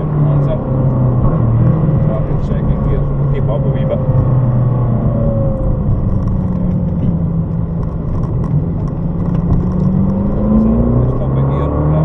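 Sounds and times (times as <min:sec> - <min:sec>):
car engine revving: 0:00.0 - 0:12.0
road and tyre noise: 0:00.0 - 0:12.0.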